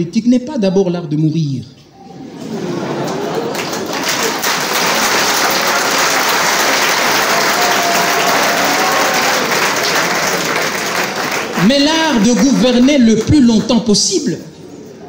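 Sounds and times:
audience applauding: 3.0s - 13.5s.

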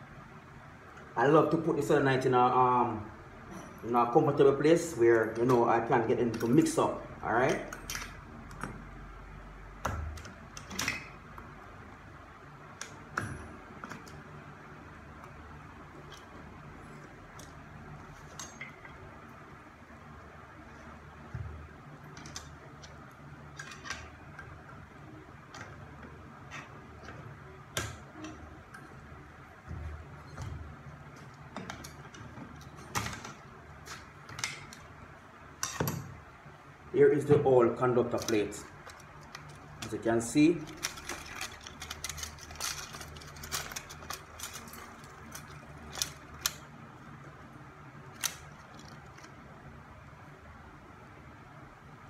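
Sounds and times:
plastic part clicking and rattling: 40.7s - 46.6s.

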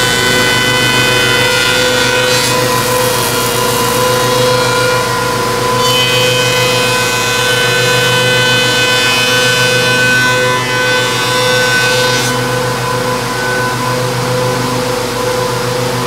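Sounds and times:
planer cutterheads whining: 0.0s - 16.0s
wooden board being planed: 0.0s - 16.0s.

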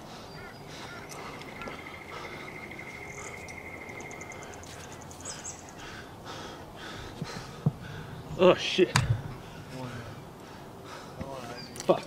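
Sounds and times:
insect trilling: 0.9s - 5.8s
rapid high chirping: 1.0s - 5.8s.

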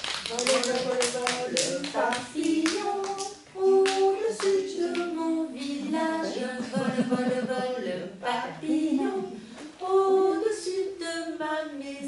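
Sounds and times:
hand claps: 0.0s - 5.8s
woman singing: 0.3s - 12.0s.

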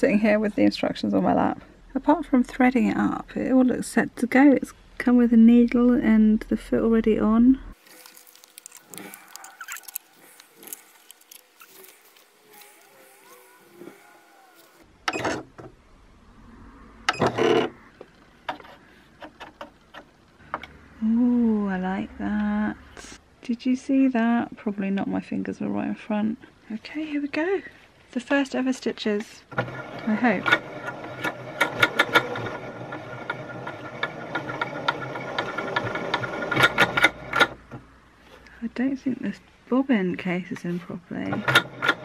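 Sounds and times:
sewing machine mechanical whirr: 29.5s - 37.6s.

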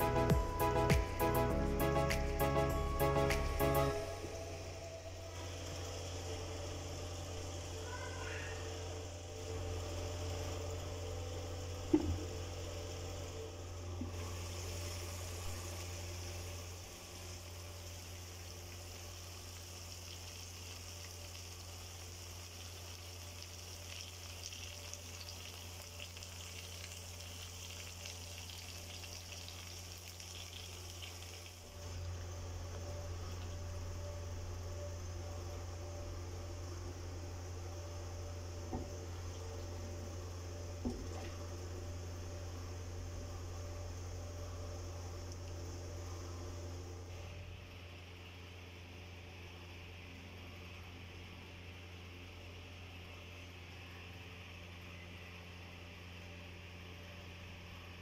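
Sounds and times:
low hum: 0.0s - 19.9s, 30.7s - 58.0s
curry sizzling and bubbling: 4.0s - 34.0s.

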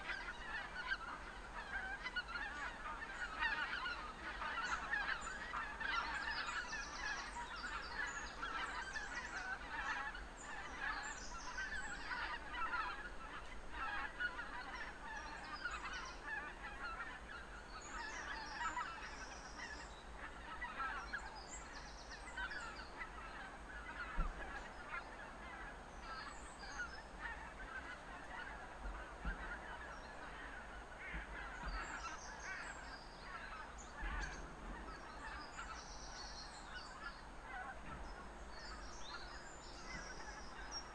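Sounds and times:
geese honking: 0.0s - 40.9s.

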